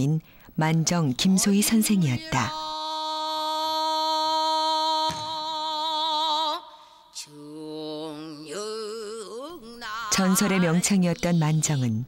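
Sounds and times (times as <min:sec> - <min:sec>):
woman singing with vibrato: 0:01.2 - 0:12.0.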